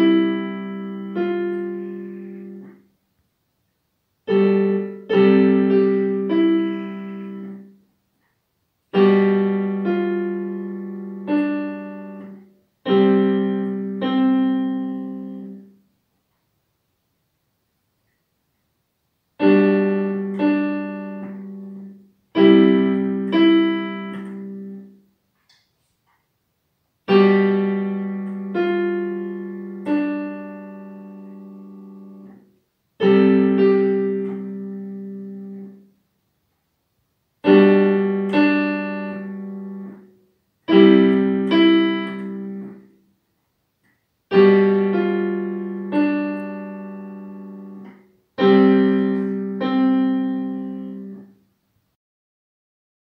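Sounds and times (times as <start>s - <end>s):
digital piano piece: 0.0s - 2.9s, 4.2s - 7.8s, 8.8s - 15.8s, 19.4s - 25.0s, 27.0s - 36.0s, 37.4s - 43.0s, 44.1s - 51.4s.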